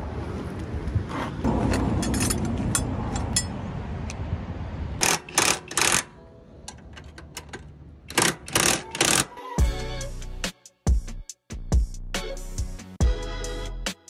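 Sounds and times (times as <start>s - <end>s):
ratchet wrench rasping: 5.0s - 6.1s, 8.1s - 9.4s.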